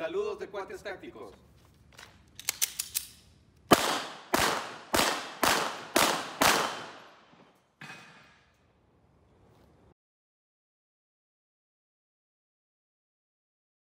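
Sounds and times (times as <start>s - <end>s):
handgun shots echoing: 2.4s - 7.4s.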